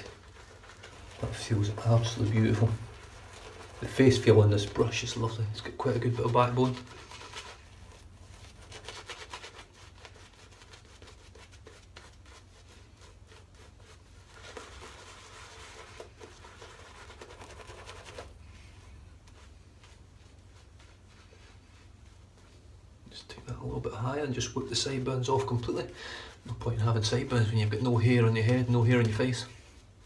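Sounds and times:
shaving brush rubbing on face: 0:00.0 - 0:22.7.

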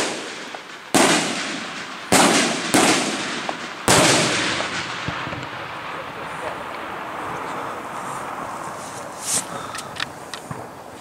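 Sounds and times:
firework shells bursting: 0:00.0 - 0:07.5.

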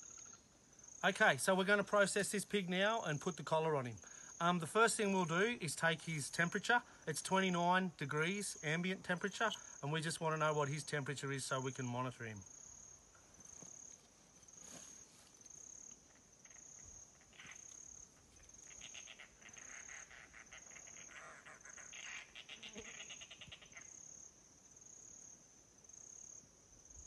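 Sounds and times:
high insect chirp: 0:00.0 - 0:27.0
animal chattering trill: 0:18.6 - 0:24.0.

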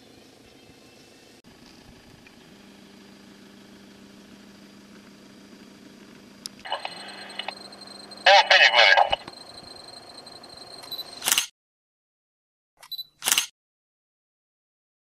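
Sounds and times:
off-road engines running at low revs: 0:00.0 - 0:11.3.

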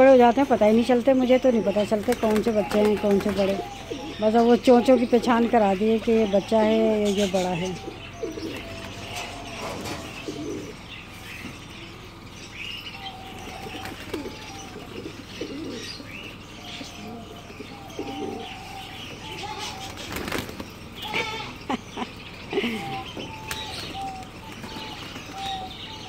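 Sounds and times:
pigeons cooing: 0:00.0 - 0:26.0
wings flapping: 0:02.0 - 0:03.7, 0:19.7 - 0:21.2.

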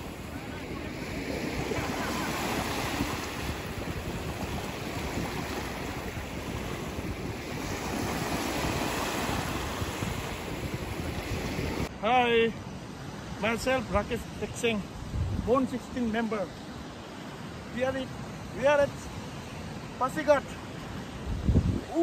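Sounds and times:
wind rumbling on microphone: 0:00.0 - 0:11.9, 0:14.9 - 0:15.6, 0:20.9 - 0:22.0
waves washing on sandy bank: 0:00.0 - 0:22.0.

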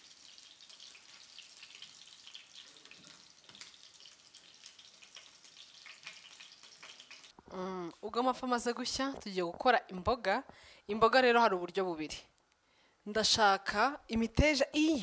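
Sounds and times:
fish sizzling in oil: 0:00.0 - 0:07.4
woman's voice: 0:07.5 - 0:12.3, 0:13.1 - 0:15.0.

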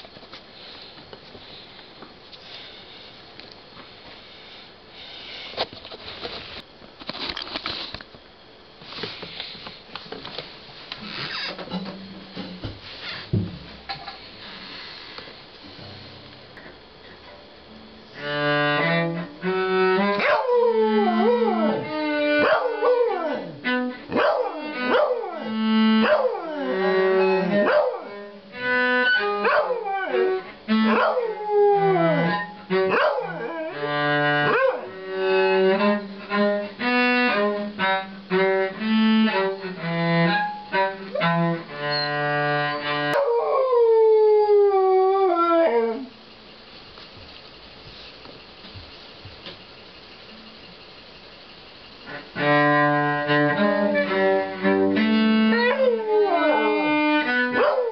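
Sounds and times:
cello held notes: 0:15.6 - 0:43.2, 0:52.0 - 0:57.6
dog howling: 0:20.2 - 0:28.2, 0:29.2 - 0:34.9, 0:43.1 - 0:46.1, 0:55.5 - 0:56.9, 0:57.5 - 0:57.9.

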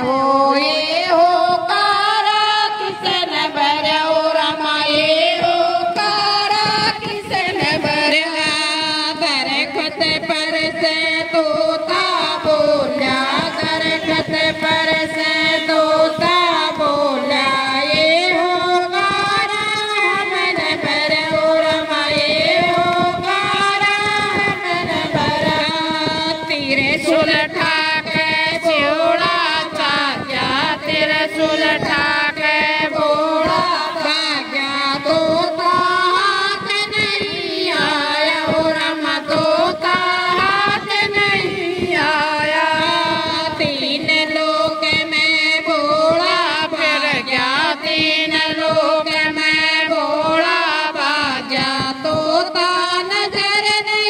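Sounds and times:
lead voice singing into microphone: 0:00.0 - 0:54.0
women singing devotional song: 0:00.0 - 0:54.0
hand claps: 0:17.9 - 0:54.0.

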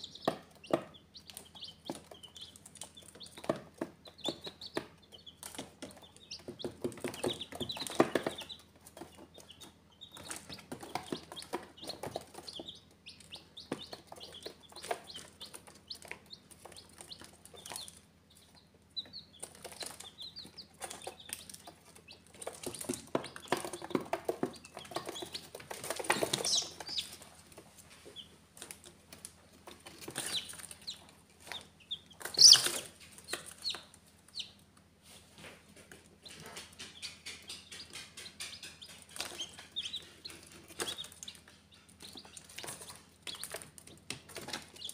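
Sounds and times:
chicks peeping: 0:00.0 - 0:44.9
scratching and tapping on cardboard: 0:00.2 - 0:18.0, 0:19.4 - 0:27.7, 0:35.8 - 0:44.9.

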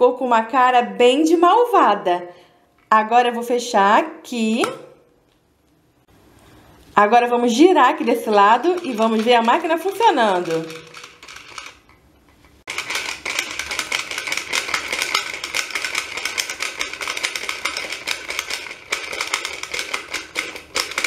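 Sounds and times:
toy gears clicking and rattling: 0:08.2 - 0:12.0, 0:12.7 - 0:21.0.

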